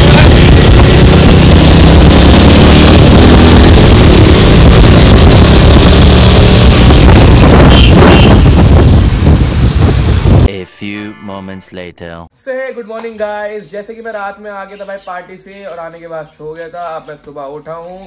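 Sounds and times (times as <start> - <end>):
motorcycle engines running: 0.0 - 8.6
wind noise over microphone: 0.0 - 10.5.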